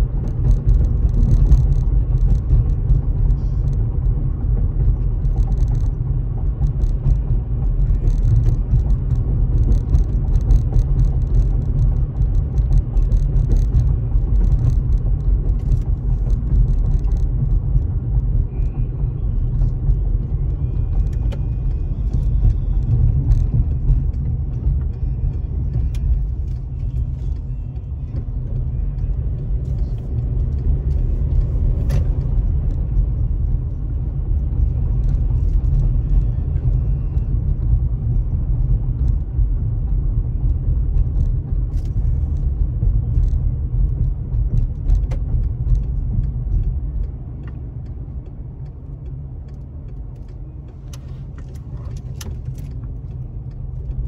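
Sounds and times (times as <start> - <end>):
car road noise rumble: 0.0 - 54.0
light clicks and rattles: 4.8 - 18.7, 39.8 - 54.0.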